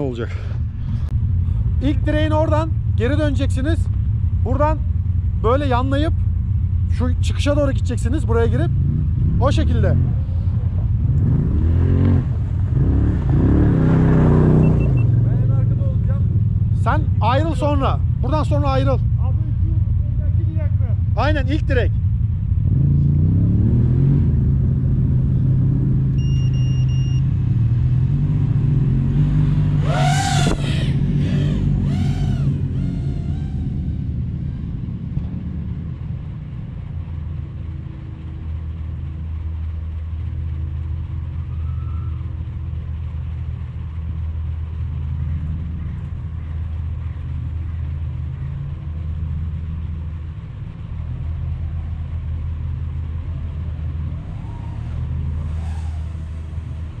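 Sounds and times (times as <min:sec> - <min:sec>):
high engine whine passing: 0:27.4 - 0:36.6, 0:51.5 - 0:57.0
snowmobile engines humming: 0:29.8 - 0:38.4, 0:50.6 - 0:57.0.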